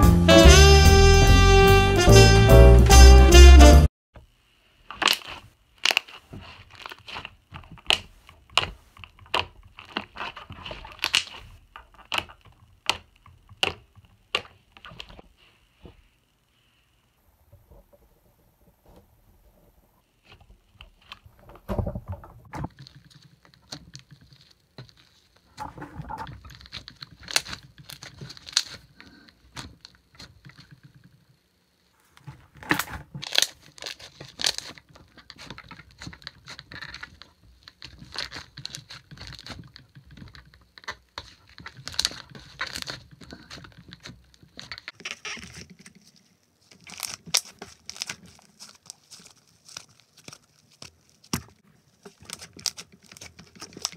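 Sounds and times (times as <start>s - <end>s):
slime squishing with clicks: 6.8s - 15.2s.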